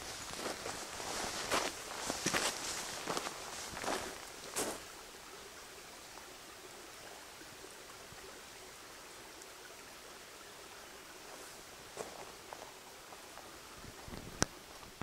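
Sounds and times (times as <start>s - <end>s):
forest ambience rushing noise: 0.0s - 14.8s
small ticks: 13.4s - 15.0s.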